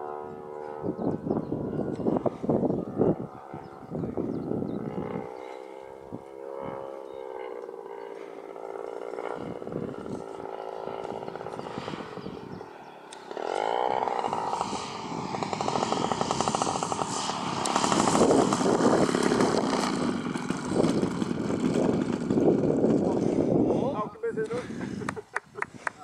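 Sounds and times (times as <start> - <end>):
model plane petrol engine: 0.0 - 24.8
plane rolling across grass: 4.8 - 23.8.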